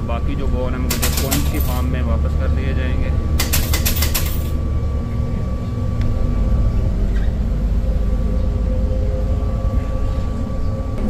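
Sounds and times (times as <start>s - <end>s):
faint steady whine: 0.0s - 3.7s, 4.3s - 11.0s
bus engine rumble: 0.0s - 11.0s
coins clattering into tray: 0.9s - 1.8s, 3.4s - 4.6s.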